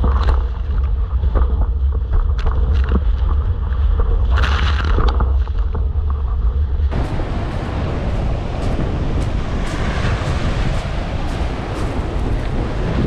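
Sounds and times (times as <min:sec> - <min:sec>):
wind buffeting microphone: 0:00.0 - 0:13.0
surf breaking on pebble beach: 0:06.9 - 0:13.0
water splashing: 0:06.9 - 0:13.0.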